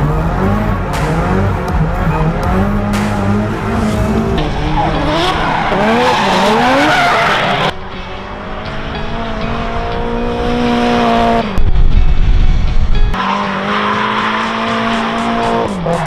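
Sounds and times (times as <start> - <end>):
car engines revving: 0.0 - 11.6, 12.3 - 16.0
tyres screeching: 3.6 - 7.7.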